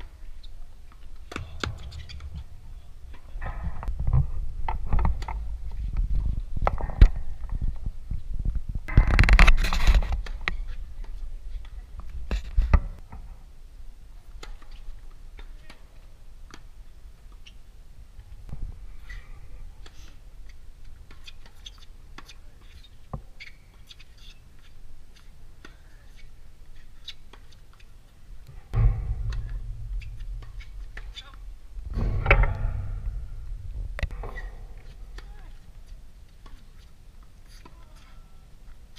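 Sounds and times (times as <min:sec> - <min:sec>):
low rumble: 0:28.5 - 0:36.3.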